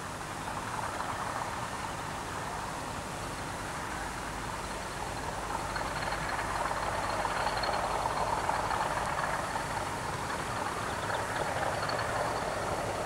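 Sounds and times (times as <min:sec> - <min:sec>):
diesel locomotive running: 0:00.0 - 0:13.0.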